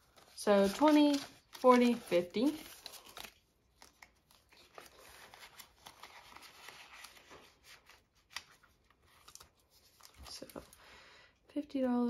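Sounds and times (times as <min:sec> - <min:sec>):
paper banknotes rustling: 0:00.0 - 0:10.8.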